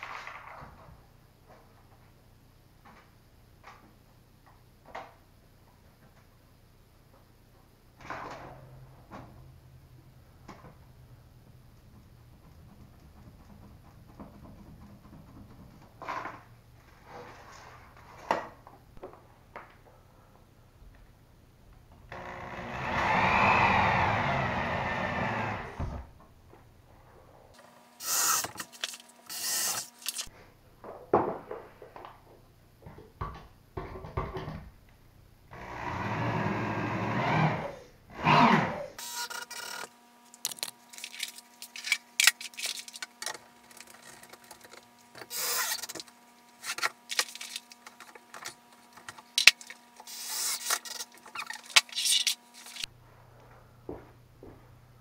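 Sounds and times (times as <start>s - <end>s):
power drill drilling into wood: 22.2s - 25.8s, 28.0s - 28.7s, 29.3s - 29.9s, 35.6s - 39.9s, 45.3s - 45.9s, 50.1s - 50.7s.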